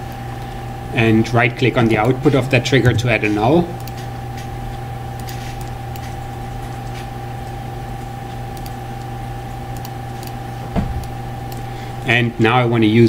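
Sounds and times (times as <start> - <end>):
steady low hum: 0.0 - 13.0
computer mouse clicks: 3.8 - 4.5, 5.2 - 6.2, 8.0 - 9.1, 9.7 - 10.4, 11.0 - 11.7
short thump: 10.7 - 11.0.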